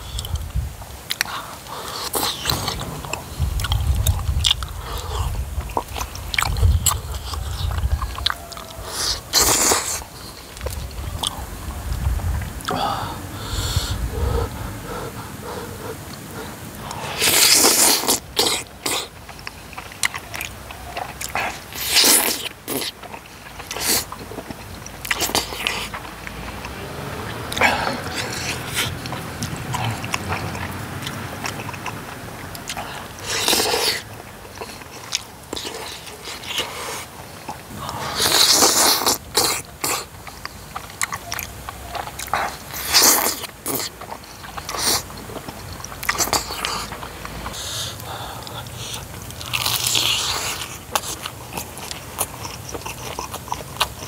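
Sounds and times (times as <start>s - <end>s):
mouth chewing: 0.0s - 54.0s
person slurping food: 1.1s - 11.5s, 12.6s - 19.1s, 25.0s - 40.8s.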